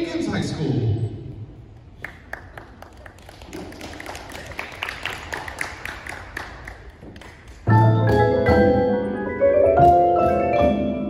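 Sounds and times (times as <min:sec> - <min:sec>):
marimbas and vibraphones: 0:07.7 - 0:11.0.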